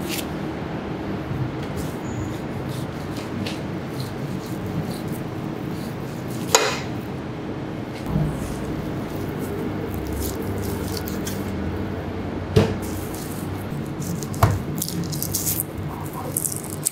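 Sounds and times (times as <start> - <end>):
low hum: 7.1 - 16.4.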